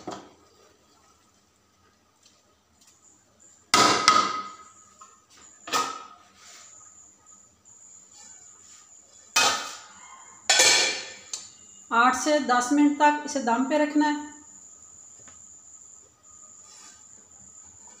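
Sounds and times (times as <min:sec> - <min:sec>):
pot and utensils clanking: 0:10.5 - 0:11.2.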